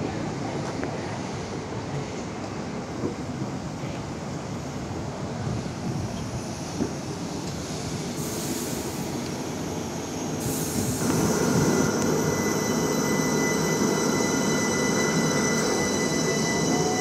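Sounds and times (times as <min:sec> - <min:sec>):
electric train pulling out: 0:08.1 - 0:17.0.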